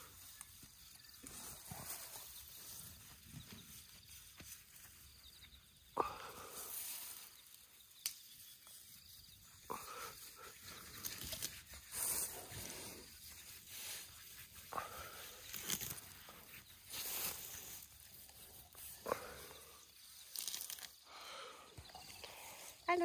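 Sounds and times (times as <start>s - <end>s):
grass rustling and tearing: 10.2s - 21.0s.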